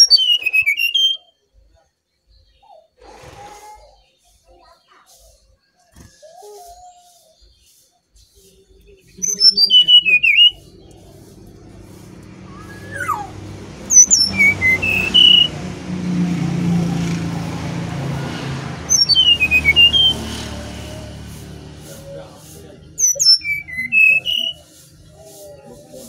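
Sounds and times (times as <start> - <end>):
bird singing whistled phrases: 0.0 - 1.4, 8.9 - 15.6, 18.9 - 20.4, 23.0 - 25.0.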